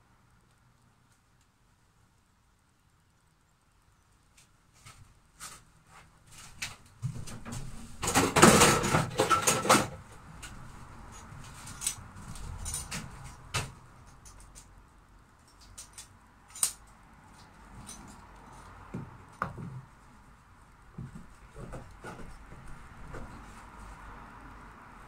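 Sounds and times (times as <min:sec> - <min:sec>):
clicks and knocks of handling: 0:15.4 - 0:19.8.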